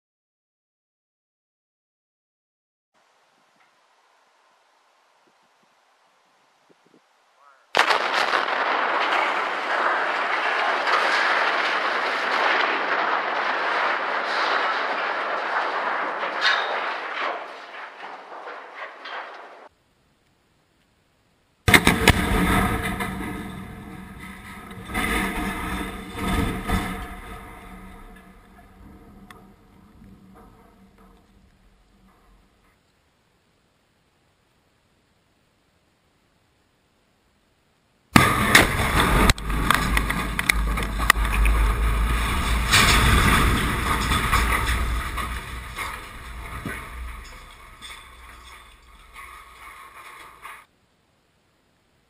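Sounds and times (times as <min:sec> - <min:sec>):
explosion rumble: 0:07.8 - 0:19.7, 0:21.7 - 0:32.7, 0:38.2 - 0:50.6
sharp explosion blasts: 0:07.8 - 0:19.7, 0:21.7 - 0:32.5, 0:38.2 - 0:49.6.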